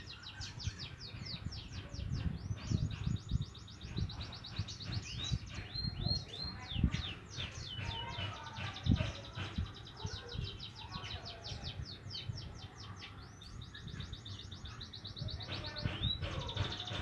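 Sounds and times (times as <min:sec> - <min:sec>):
young birds twittering: 0:00.0 - 0:17.0.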